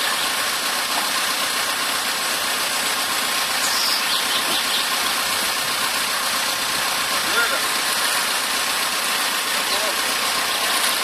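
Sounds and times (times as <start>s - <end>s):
diesel engine running: 0.0s - 11.0s
high-pitched squealing hiss: 3.6s - 4.9s.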